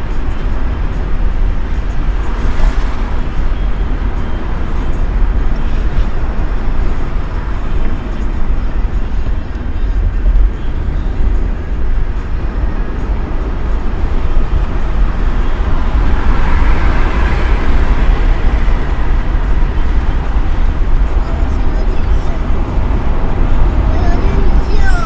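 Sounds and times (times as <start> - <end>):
car tyre and engine rumble: 0.0 - 25.0.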